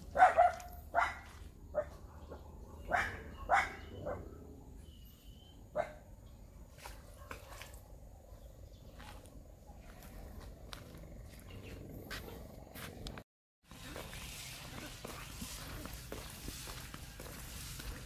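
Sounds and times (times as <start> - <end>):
dog barking: 0.1 - 4.4, 5.7 - 6.1, 12.1 - 12.6.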